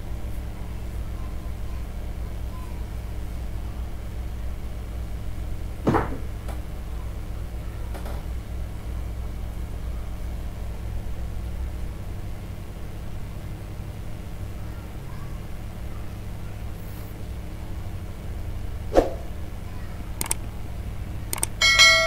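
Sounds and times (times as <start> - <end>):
low background hum: 0.0 - 22.0
sharp clicks: 20.2 - 20.4, 21.3 - 21.6.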